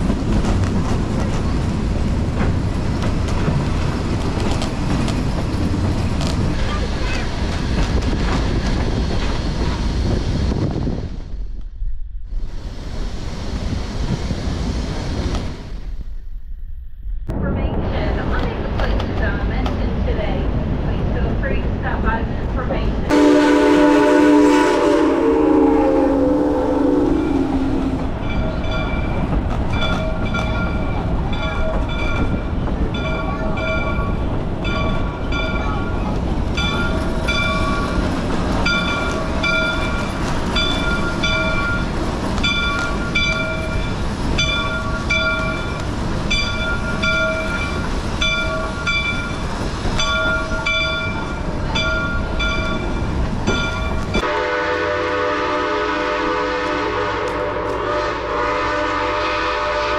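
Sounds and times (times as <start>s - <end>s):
low rumble: 7.6s - 23.4s, 25.0s - 30.4s
steam locomotive whistle: 23.1s - 28.4s, 54.2s - 59.9s
locomotive bell ringing: 27.1s - 54.3s.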